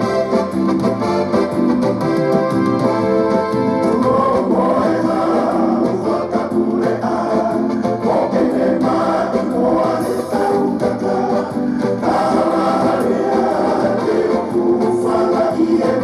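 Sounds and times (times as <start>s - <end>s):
electronic keyboard: 0.0s - 16.0s
group singing in harmony: 3.8s - 16.0s.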